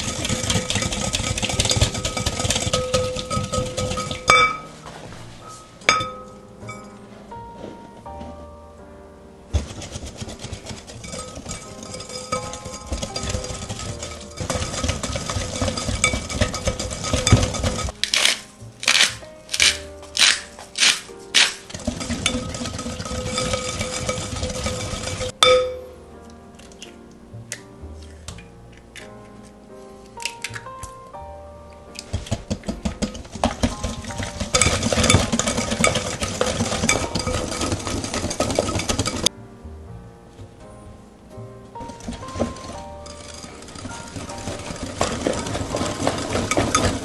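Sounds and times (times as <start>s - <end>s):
salt grinder grinding: 0.0s - 4.2s, 9.6s - 25.4s, 32.0s - 39.3s, 41.8s - 47.0s
whisk beating in glass bowl: 0.0s - 4.8s, 9.5s - 18.0s, 20.8s - 25.8s, 32.0s - 39.3s, 41.8s - 47.0s.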